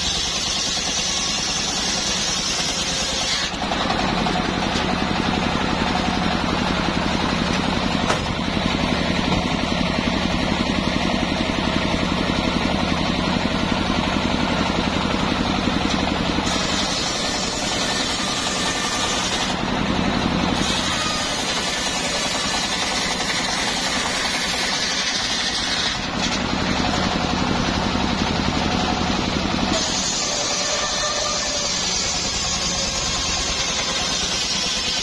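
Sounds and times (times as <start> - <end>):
saw blade ripping wood: 0.0 - 9.5, 15.8 - 19.7, 20.4 - 27.2, 29.7 - 35.0
sawmill engine running: 0.0 - 35.0.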